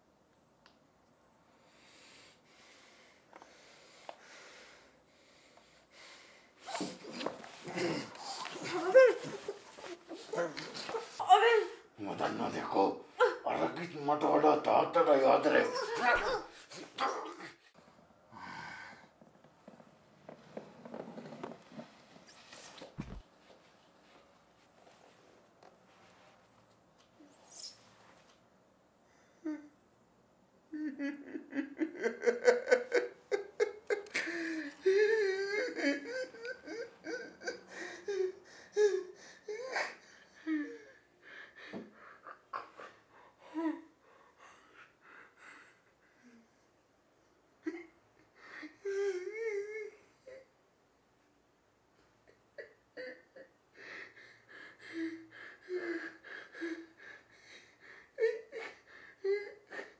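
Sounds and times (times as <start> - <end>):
man sobbing: 7.6 - 13.6, 30.7 - 43.9, 47.6 - 50.5, 52.2 - 59.9
man laughing: 30.8 - 37.6.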